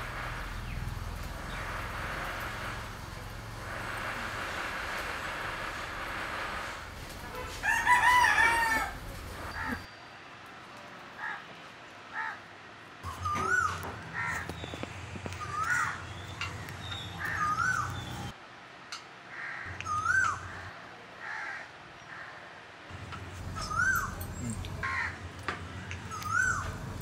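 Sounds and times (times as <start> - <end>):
rooster crowing: 7.5 - 9.9
rising and falling bird calls: 13.0 - 18.4, 19.6 - 20.8, 23.6 - 25.2, 25.9 - 26.8.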